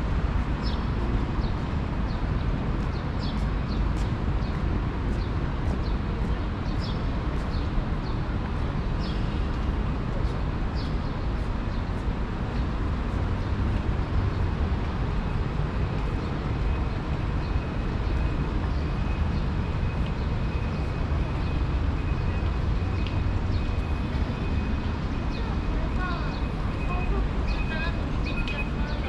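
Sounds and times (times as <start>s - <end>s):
road traffic rumble: 0.0s - 29.0s.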